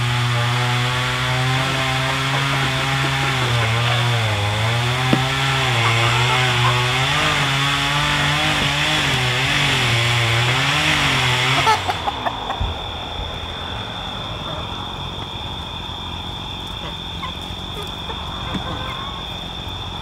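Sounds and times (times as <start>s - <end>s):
chainsaw cutting: 0.0s - 12.4s
short knocks: 1.5s - 11.5s.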